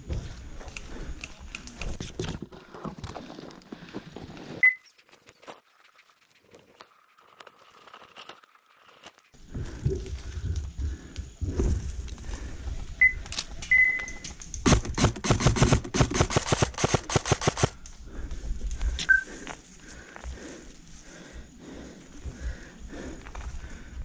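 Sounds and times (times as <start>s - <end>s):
airsoft gun shots: 14.6s - 17.7s.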